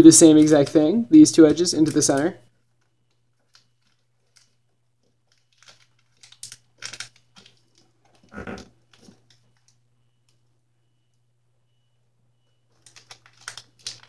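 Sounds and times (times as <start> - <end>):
faint low hum: 0.0 - 14.0
paper rustling and crinkling: 1.8 - 9.8, 12.7 - 14.0.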